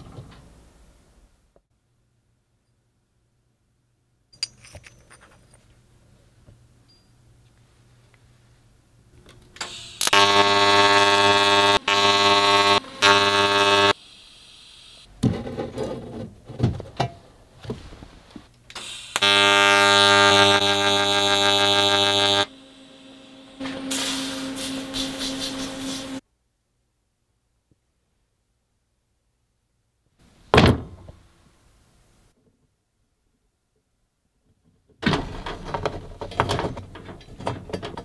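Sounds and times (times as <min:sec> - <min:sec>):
metal pieces clinking: 0:04.4 - 0:05.7
welding arc buzzing: 0:09.6 - 0:15.1, 0:18.8 - 0:26.2.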